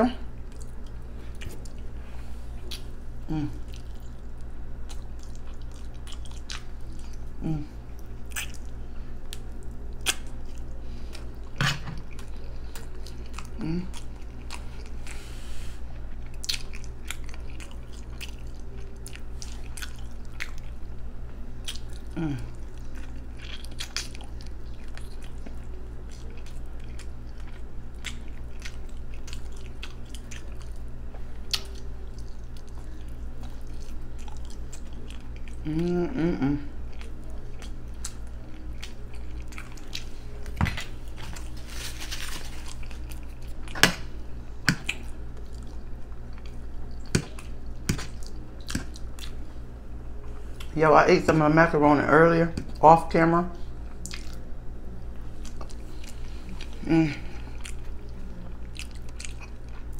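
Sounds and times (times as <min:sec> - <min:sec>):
steady low hum: 0:00.0 - 0:59.9
chewing and lip smacking: 0:00.4 - 0:01.9, 0:02.6 - 0:15.2, 0:15.9 - 0:21.0, 0:21.6 - 0:43.9, 0:44.6 - 0:50.8, 0:53.8 - 0:54.5, 0:55.1 - 0:59.9
person humming: 0:03.2 - 0:03.8, 0:07.4 - 0:07.8, 0:13.5 - 0:14.1, 0:22.1 - 0:22.6, 0:35.6 - 0:36.8, 0:56.6 - 0:57.6.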